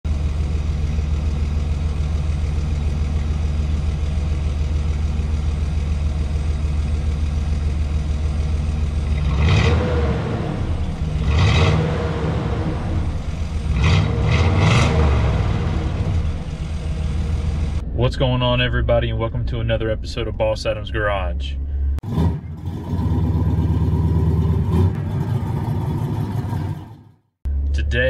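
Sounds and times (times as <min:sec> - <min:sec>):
truck engine idling: 0:00.0 - 0:09.5, 0:10.2 - 0:28.0
engine revving blips: 0:09.0 - 0:27.9.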